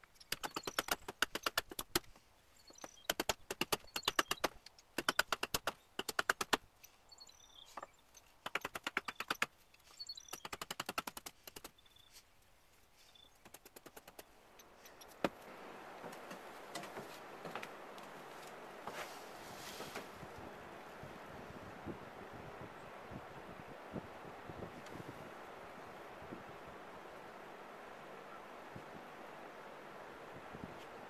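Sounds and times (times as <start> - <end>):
hatchet chopping wood: 0.3 - 2.1, 3.0 - 6.6, 8.4 - 9.5
wind on microphone: 15.3 - 31.0.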